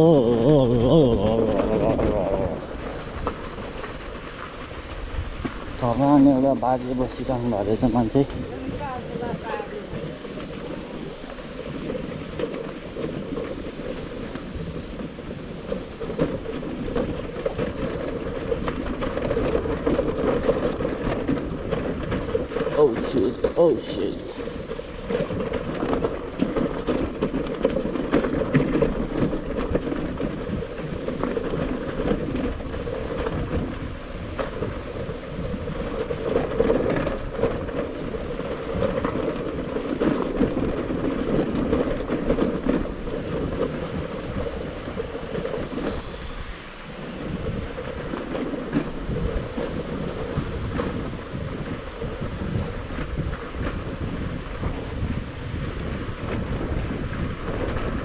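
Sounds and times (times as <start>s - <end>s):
rattles and knocks: 15.7s - 33.8s.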